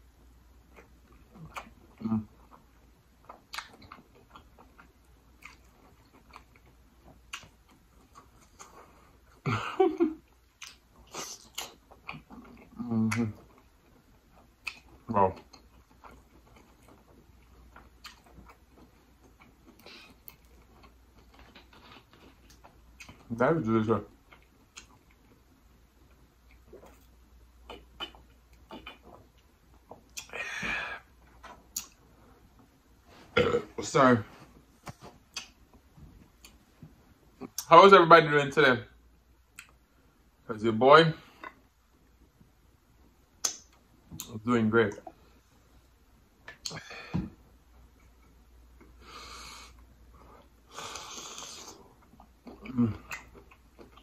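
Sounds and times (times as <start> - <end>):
gulping: 27.6 - 29.3
airy breath hisses: 50.7 - 51.8.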